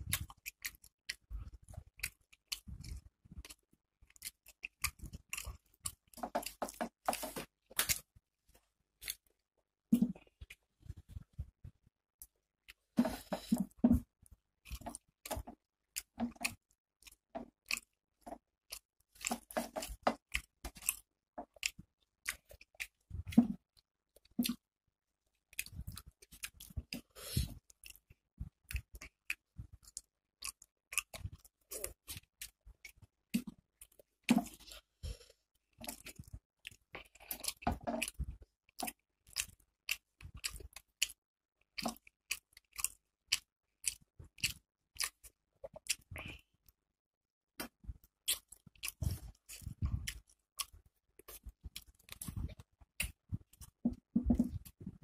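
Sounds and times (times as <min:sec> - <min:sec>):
wet chewing mouth clicks: 0:35.8 - 0:46.4, 0:47.6 - 0:55.0.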